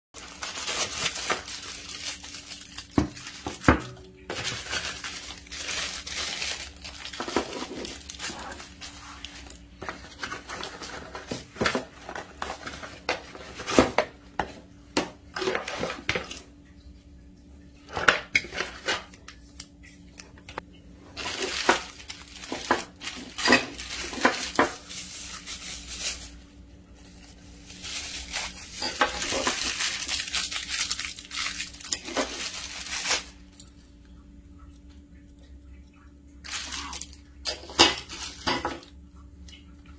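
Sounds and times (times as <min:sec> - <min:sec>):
plastic bags rustling: 0:00.2 - 0:14.0, 0:21.0 - 0:33.8, 0:36.4 - 0:39.0.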